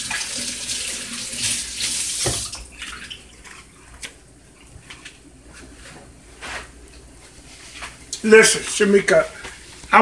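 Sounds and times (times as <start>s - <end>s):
kitchen faucet running: 0.0s - 3.3s.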